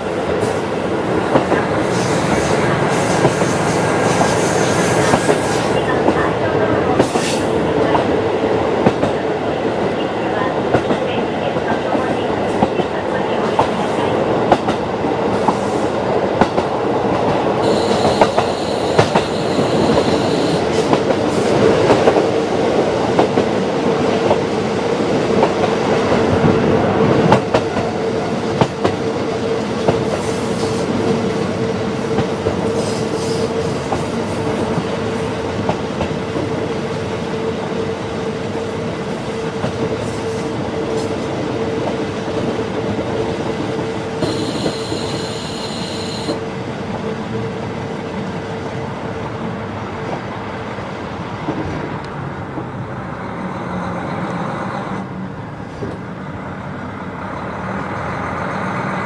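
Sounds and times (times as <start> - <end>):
diesel railcar engine drone: 0.0 - 23.1, 36.6 - 59.0
high-pitched noise: 17.6 - 20.7, 44.2 - 46.4.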